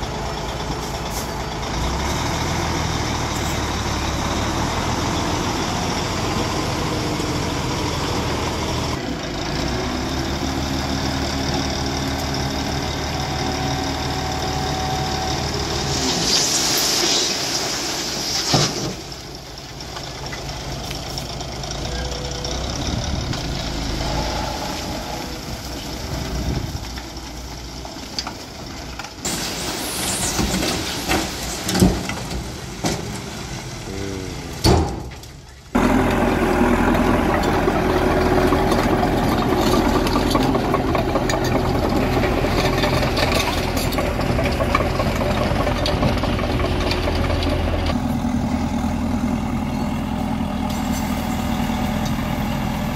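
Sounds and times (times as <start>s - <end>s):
dozer diesel engine drone: 0.0s - 52.9s
dump truck diesel engine: 0.0s - 52.9s
soil sliding out: 15.0s - 19.4s, 23.3s - 33.8s.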